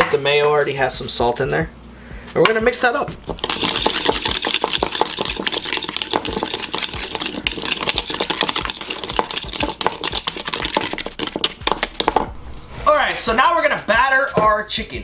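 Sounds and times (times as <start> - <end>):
whisk beating in bowl: 3.2 - 12.3.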